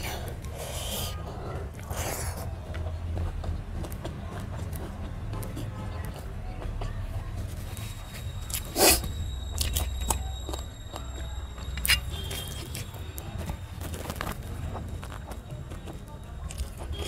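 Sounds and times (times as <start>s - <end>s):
chewing: 7.6s - 17.0s.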